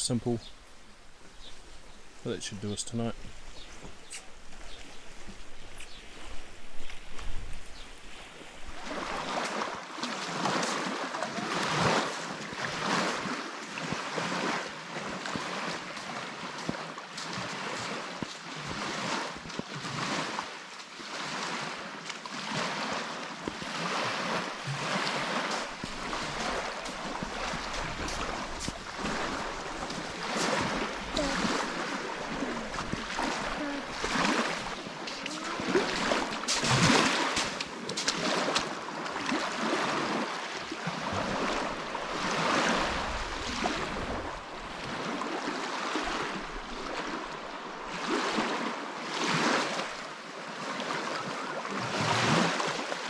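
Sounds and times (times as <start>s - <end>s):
wind blowing: 0.0s - 19.6s, 23.4s - 39.0s, 41.1s - 45.4s
waves washing onto sandy shore: 2.2s - 53.0s.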